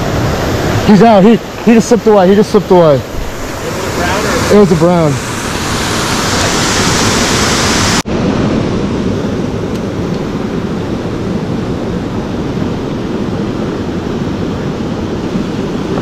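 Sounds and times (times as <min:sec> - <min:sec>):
creek water rushing: 0:00.0 - 0:08.5.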